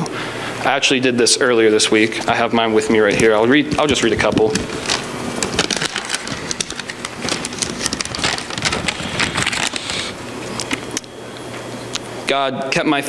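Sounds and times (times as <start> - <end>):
paper rustling and crackling: 1.9 - 11.1.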